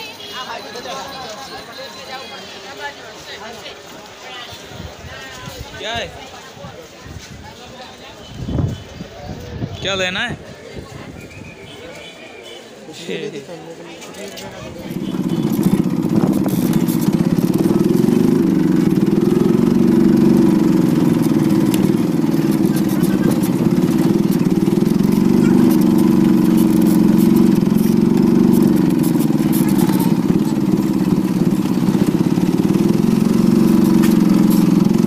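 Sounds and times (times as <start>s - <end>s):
vehicle engine revving: 14.6s - 35.0s.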